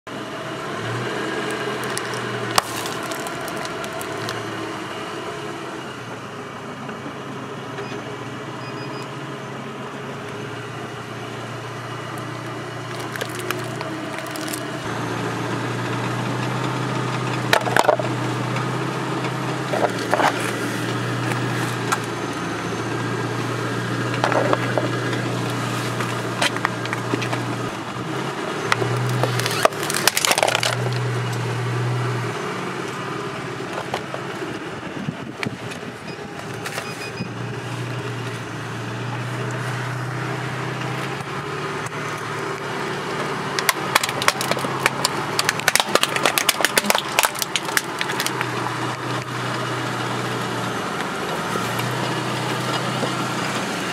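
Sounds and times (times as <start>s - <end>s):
car engine humming: 0.1s - 53.9s
tyre crushing plastic objects: 1.4s - 4.4s, 12.2s - 14.8s, 17.5s - 18.1s, 19.7s - 22.2s, 24.2s - 27.5s, 28.7s - 31.4s, 43.5s - 49.3s.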